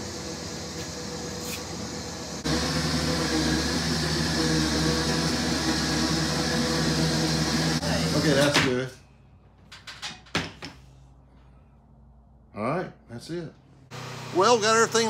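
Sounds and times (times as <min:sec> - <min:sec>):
electric winch motor whining: 0:00.0 - 0:08.6.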